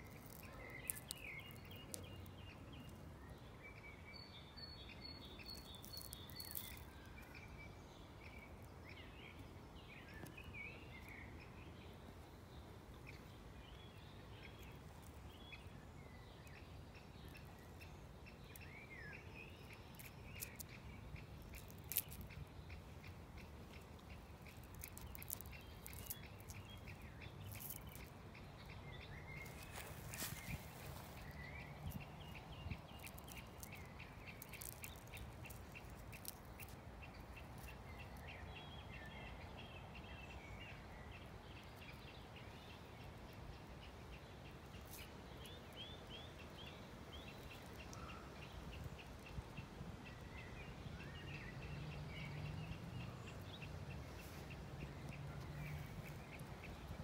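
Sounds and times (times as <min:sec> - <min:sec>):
dry crackles of bud caps: 0:00.0 - 0:02.2, 0:05.5 - 0:07.4, 0:19.9 - 0:22.4, 0:23.6 - 0:28.1, 0:29.4 - 0:32.0, 0:32.6 - 0:36.8.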